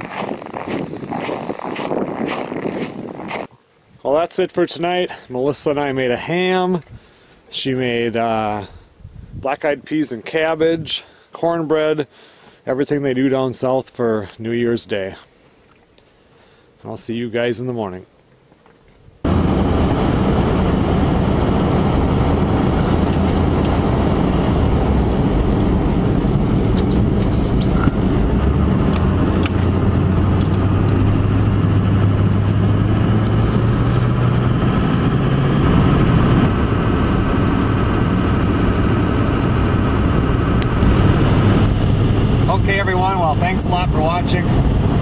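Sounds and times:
road and tyre noise: 0.0s - 3.6s, 18.4s - 45.0s
low engine drone: 19.2s - 45.0s.

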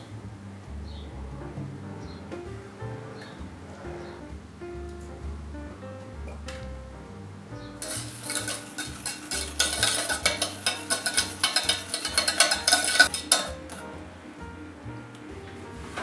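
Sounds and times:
whisk clicking against a pan: 7.8s - 13.8s.

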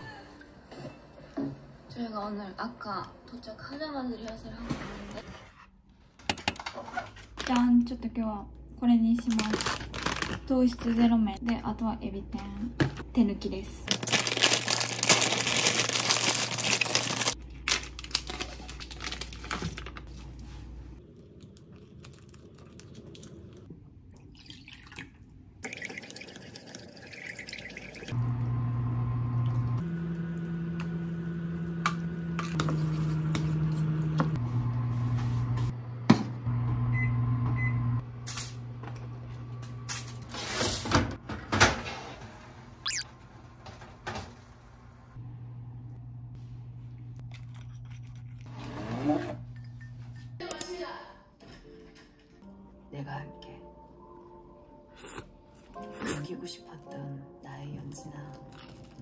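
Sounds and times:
appliance hum: 4.0s - 24.9s, 26.5s - 50.6s.

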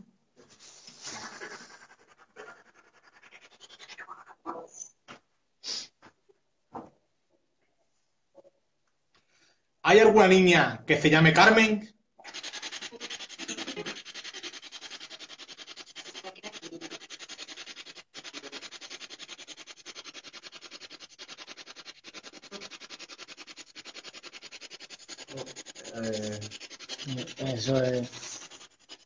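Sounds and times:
person speaking: 9.8s - 11.9s, 25.4s - 28.5s.

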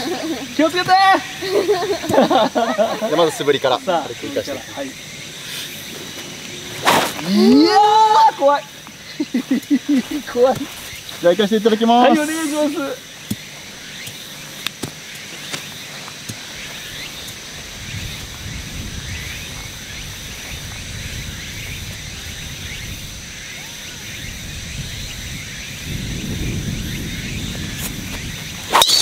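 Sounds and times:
high insect drone: 0.0s - 29.0s
low wind rumble on microphone: 16.6s - 28.8s.

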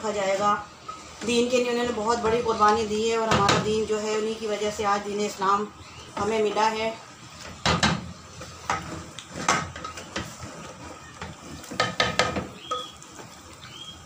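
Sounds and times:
wooden spoon stirring in metal pot: 0.0s - 5.0s, 6.1s - 14.0s
spoon knocking against pot: 11.7s - 13.0s.

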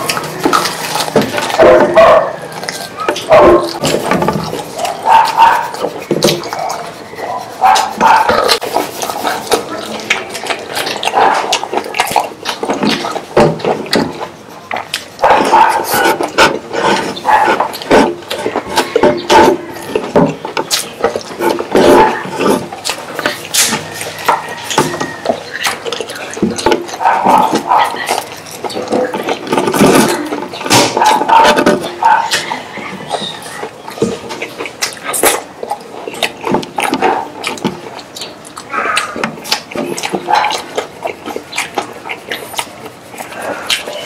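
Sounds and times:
lip smacking: 0.0s - 44.0s
man chewing food: 0.0s - 44.0s
mouth clicks: 0.0s - 44.0s
finger licking: 31.8s - 44.0s.

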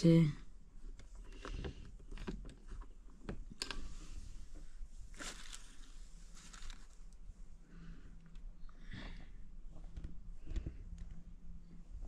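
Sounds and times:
net curtain rustling: 5.0s - 7.2s.

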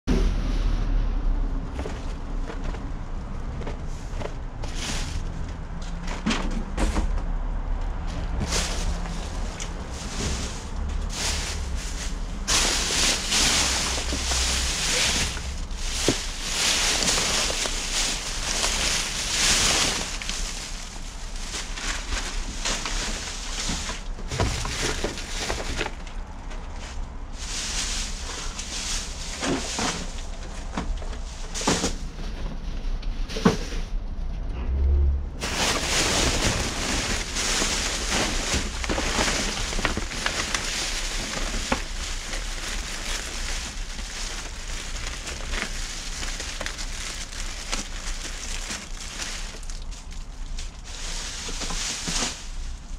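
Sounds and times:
plastic bags crinkling: 8.0s - 32.0s, 35.4s - 52.9s.

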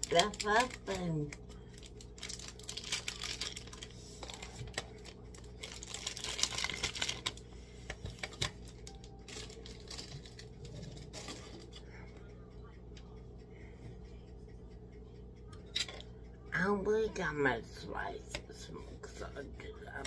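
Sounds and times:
steady low hum: 0.0s - 20.0s
rustling of handled objects: 1.7s - 11.8s.

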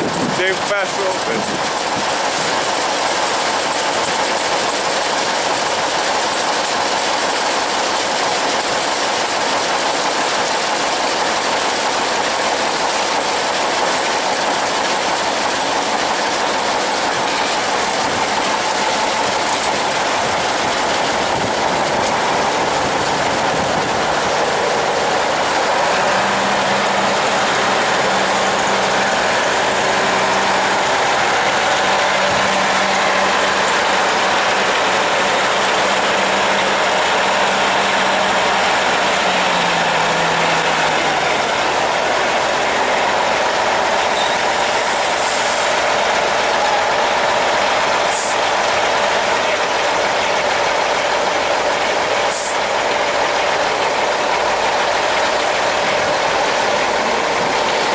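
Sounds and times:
tractor diesel engines droning: 0.0s - 57.9s.

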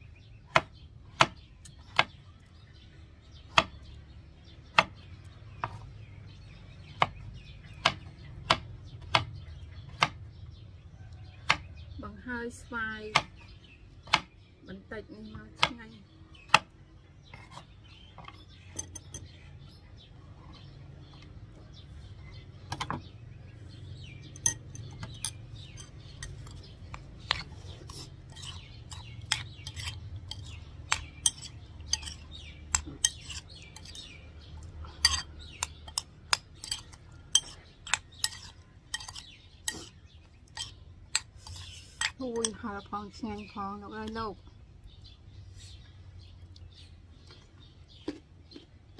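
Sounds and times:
metal spoon clinking on ceramic bowl: 31.2s - 34.0s, 35.0s - 39.2s.

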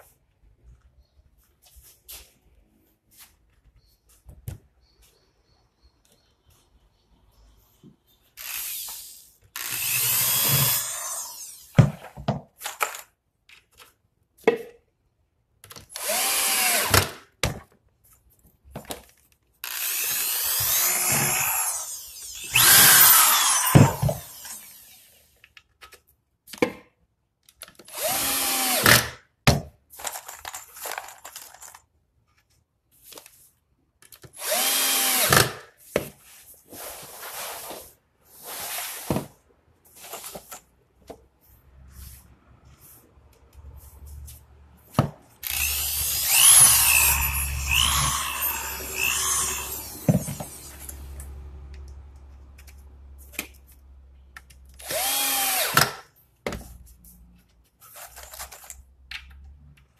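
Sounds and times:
electric drill bursts: 8.4s - 11.8s, 16.0s - 17.0s, 19.7s - 25.2s, 27.9s - 29.0s, 34.4s - 35.5s, 45.4s - 51.2s, 54.8s - 55.8s.

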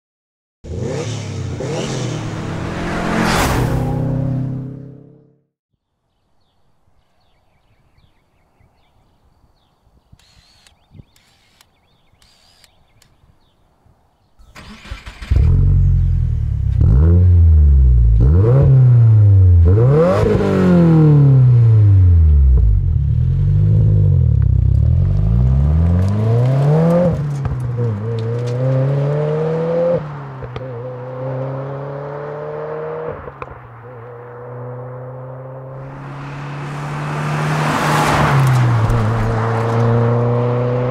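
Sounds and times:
car engine revving: 0.6s - 5.4s, 14.5s - 33.5s, 34.3s - 40.9s
car pulling away: 14.4s - 33.5s, 34.5s - 40.9s.

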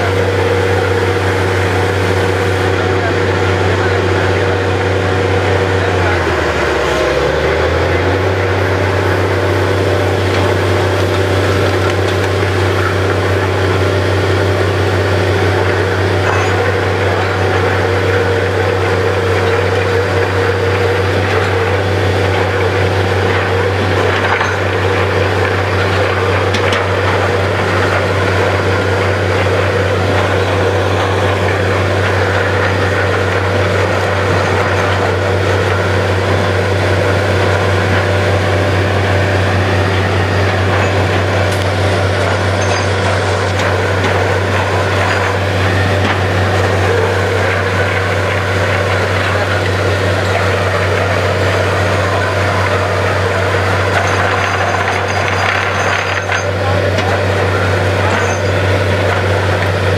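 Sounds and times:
drilling rig engine droning: 0.0s - 59.9s.

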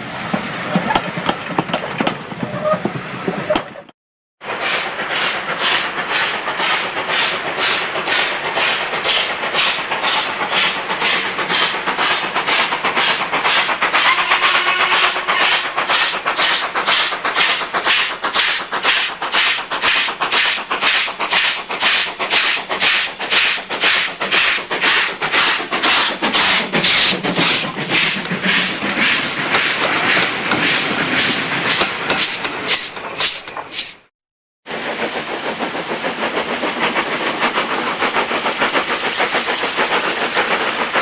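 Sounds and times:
steam locomotive exhaust beats: 0.0s - 33.9s, 34.7s - 41.0s.

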